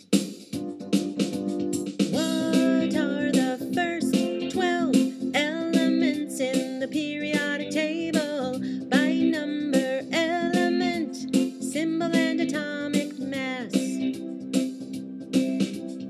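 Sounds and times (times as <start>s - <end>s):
song with guitar and singing: 2.2s - 14.7s.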